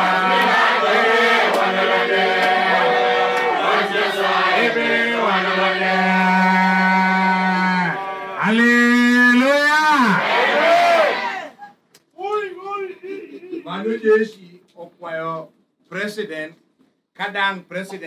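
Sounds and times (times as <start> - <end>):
congregation singing: 0.0 - 8.4.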